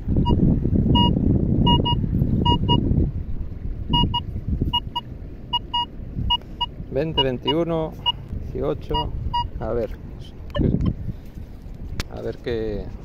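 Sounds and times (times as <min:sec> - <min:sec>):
wind rumble on microphone: 0:00.0 - 0:13.0
metal detector beeps: 0:01.0 - 0:02.8, 0:04.0 - 0:08.2, 0:08.9 - 0:09.6.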